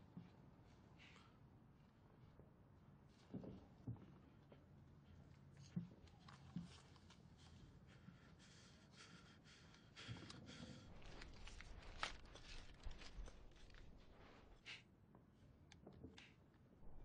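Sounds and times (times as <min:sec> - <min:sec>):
faint scraping and rustling: 0:10.9 - 0:14.6.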